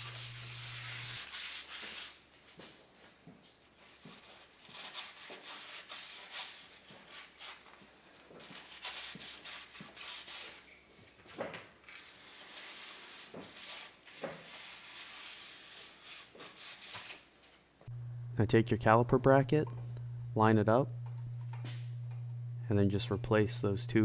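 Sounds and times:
cloth rag rubbing metal: 0.0 - 2.1.

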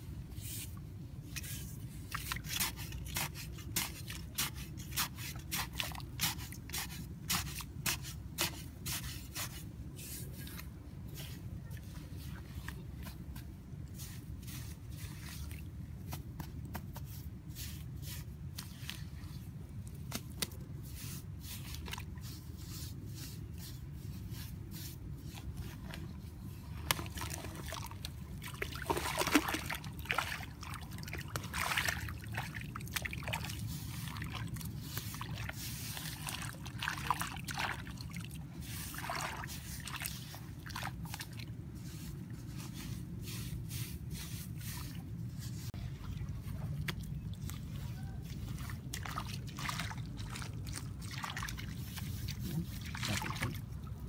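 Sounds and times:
hands scraping wet mud: 0.4 - 54.0
water sloshing and trickling: 0.7 - 8.8, 9.6 - 54.0.

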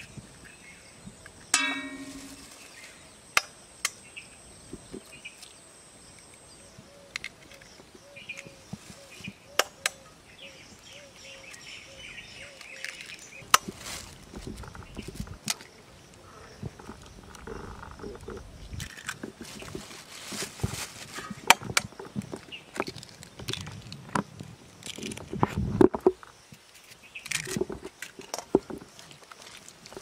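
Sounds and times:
birds chirping: 0.0 - 18.8, 21.1 - 23.6
plastic bag rustling: 1.9 - 3.0, 13.0 - 15.3, 18.9 - 21.5.

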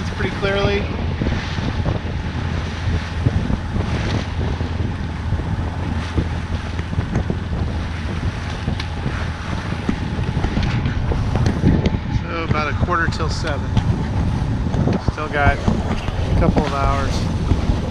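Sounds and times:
diesel engine hum: 0.0 - 17.9
water rushing past hull: 0.0 - 17.9
wind buffeting microphone: 0.0 - 17.9
splashes and knocks: 5.8 - 17.9.

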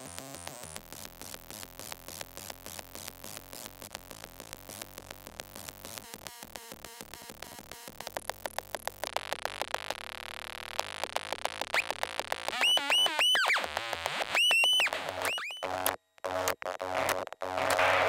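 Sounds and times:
high gliding electronic squeals: 14.3 - 15.7.

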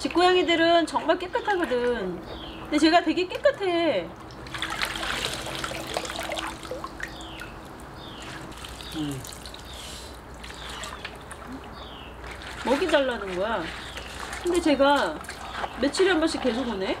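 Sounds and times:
water dripping: 0.9 - 11.8
water splashing in a basin: 1.0 - 16.7
handling wet leaves: 7.5 - 16.9.

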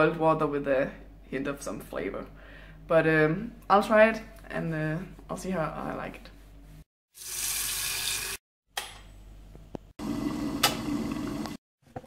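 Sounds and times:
tap water running into kettle: 7.2 - 8.4, 10.0 - 11.6.

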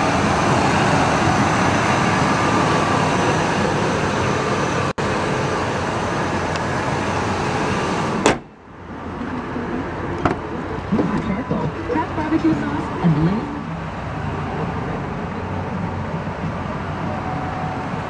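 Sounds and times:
truck engine idling: 0.0 - 18.0
sharp bang: 8.2 - 8.6.

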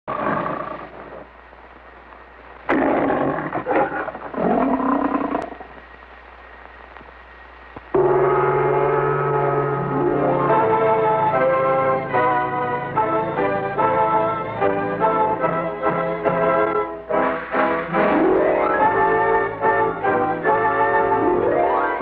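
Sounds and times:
lion roaring: 0.1 - 1.0, 2.7 - 5.8
film hiss: 0.1 - 22.0.

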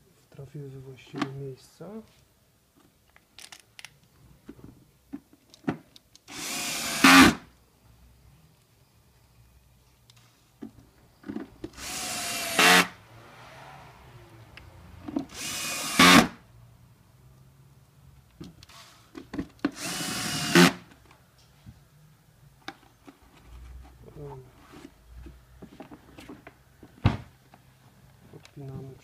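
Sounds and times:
cordless drill driving screws: 6.3 - 7.4, 11.8 - 13.0, 15.3 - 16.4, 19.7 - 20.8.

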